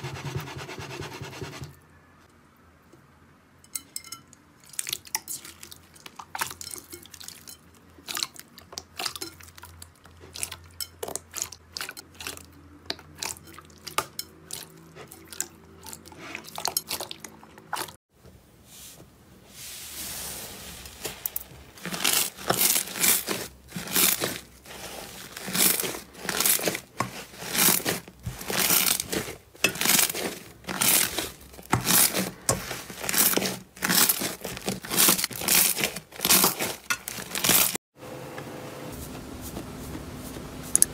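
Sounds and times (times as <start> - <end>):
hands squelching slime: 20.6 - 37.8
slime crackling and tearing: 21.1 - 37.8.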